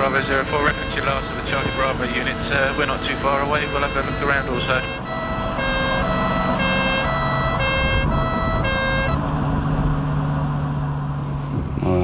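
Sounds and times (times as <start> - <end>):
police siren two-tone: 0.0 - 9.2
car engine hum: 0.0 - 12.0
road noise: 0.0 - 12.0.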